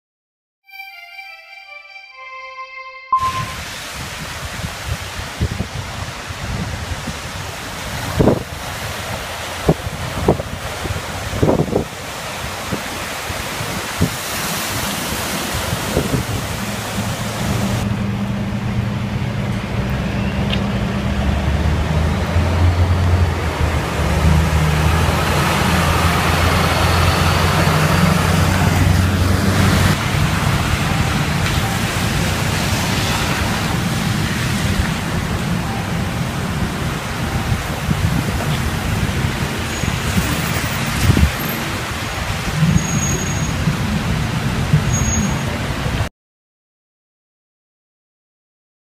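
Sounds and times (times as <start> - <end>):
tyres splashing through water: 3.5 - 46.0
low engine hum: 15.7 - 39.5.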